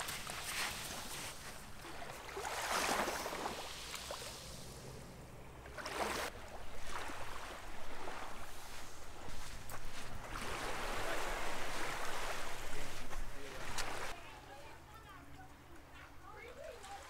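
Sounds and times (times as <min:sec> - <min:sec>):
small waves washing on sandy shore: 0:00.0 - 0:05.1, 0:05.8 - 0:14.2.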